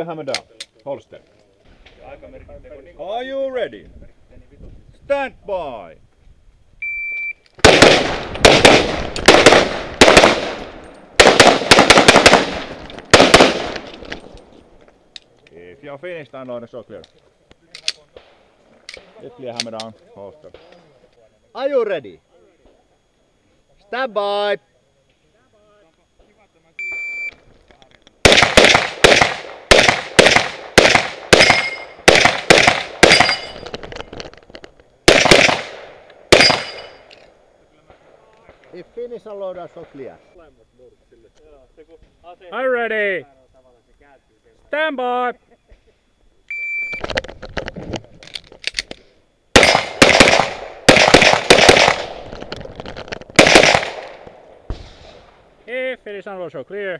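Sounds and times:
electronic timer beep: 0:06.8 - 0:07.4, 0:26.8 - 0:27.4, 0:46.5 - 0:47.0
pistol shots: 0:07.6 - 0:14.1, 0:28.2 - 0:33.8, 0:35.1 - 0:37.1, 0:49.6 - 0:52.6, 0:53.3 - 0:55.2.

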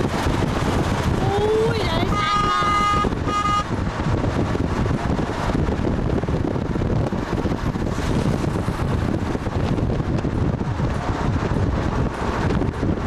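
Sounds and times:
vehicle wind and road noise: 0:00.0 - 0:13.0
short horn toot: 0:02.1 - 0:03.7.

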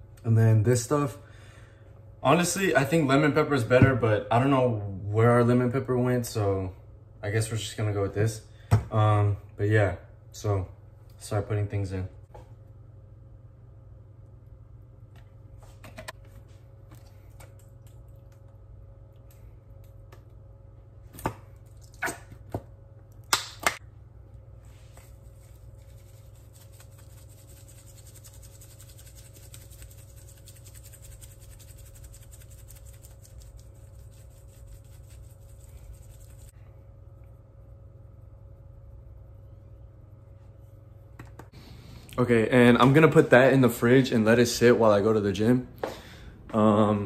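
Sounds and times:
low steady hum: 0:00.0 - 0:47.0
seasoning shaker rattling: 0:25.0 - 0:36.5.

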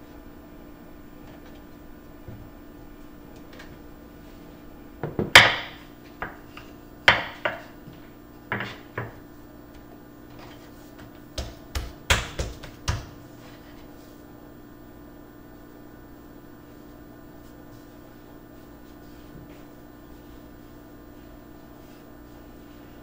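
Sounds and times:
kitchen utensils knocking on wood: 0:05.0 - 0:06.4, 0:07.1 - 0:07.7, 0:08.5 - 0:09.2.

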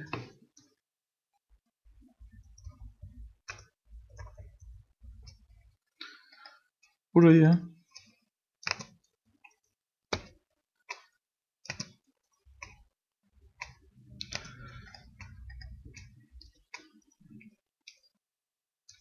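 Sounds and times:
computer mouse clicking: 0:03.4 - 0:05.5, 0:07.9 - 0:10.3, 0:10.9 - 0:12.8, 0:13.6 - 0:18.1.

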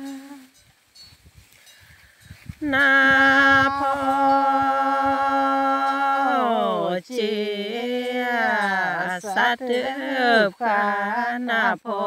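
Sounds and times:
person chanting: 0:02.6 - 0:12.0.

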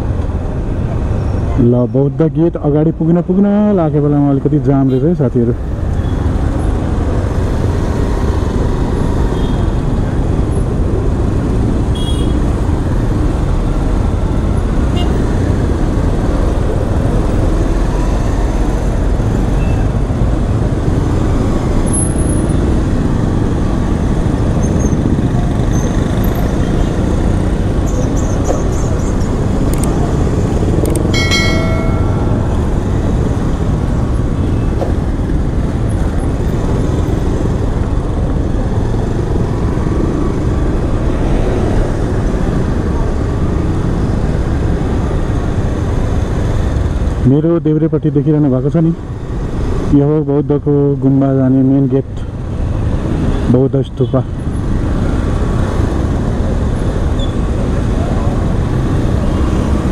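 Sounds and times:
city traffic noise: 0:00.0 - 0:59.9
vehicle horn honking: 0:12.0 - 0:12.4.

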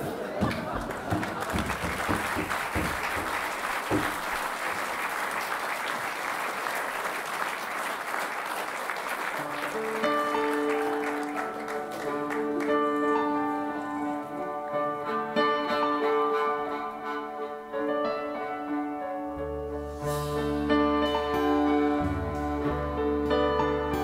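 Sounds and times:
audience applauding: 0:00.4 - 0:14.4
instrumental music with held notes: 0:09.5 - 0:24.0.

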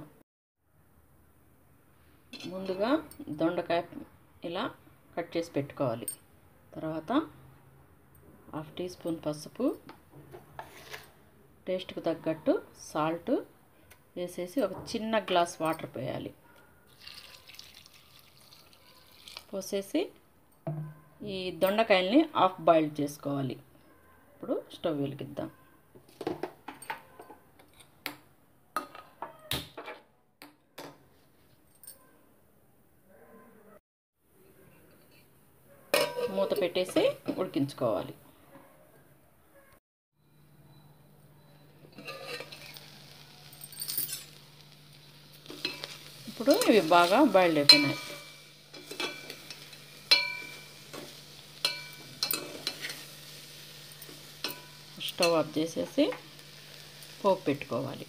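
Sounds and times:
metal spoon clinking on pot: 0:35.9 - 0:37.0, 0:41.9 - 0:42.8, 0:43.6 - 0:44.4, 0:45.5 - 0:52.9, 0:54.0 - 0:55.5.

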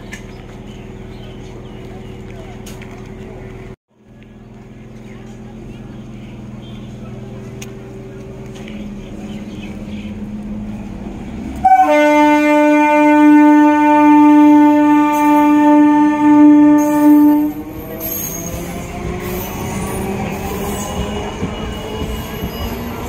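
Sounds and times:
train running: 0:00.0 - 0:23.0
train air horn blast: 0:11.6 - 0:17.7
high wheel squeal: 0:16.8 - 0:23.0.

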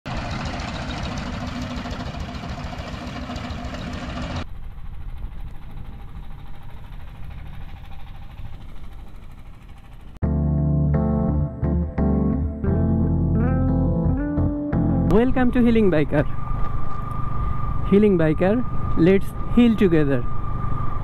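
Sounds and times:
boat engine running: 0:00.0 - 0:10.2
wind: 0:00.0 - 0:10.2, 0:15.1 - 0:21.0.

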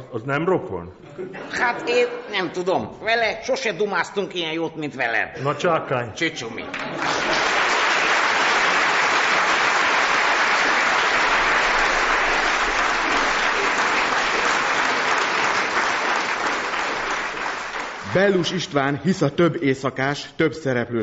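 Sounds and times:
audience applauding: 0:06.7 - 0:18.9.

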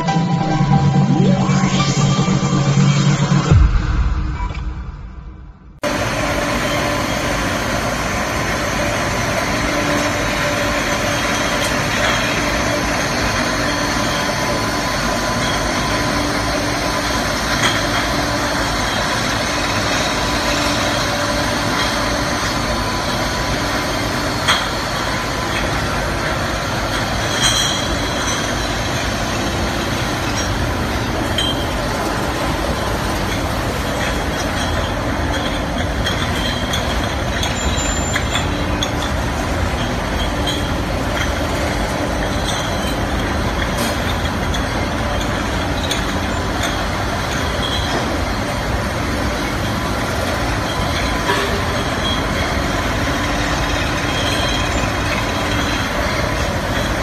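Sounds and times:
machinery running: 0:00.0 - 0:57.0
glass bottles clinking: 0:25.5 - 0:29.6, 0:30.3 - 0:32.0, 0:33.2 - 0:48.5, 0:49.2 - 0:57.0.

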